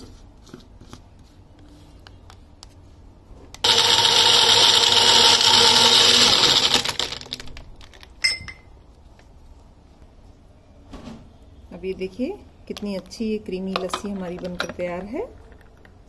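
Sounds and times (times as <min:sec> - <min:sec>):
blender blending ice: 0:03.6 - 0:07.4
blender jar clack: 0:03.6 - 0:07.4.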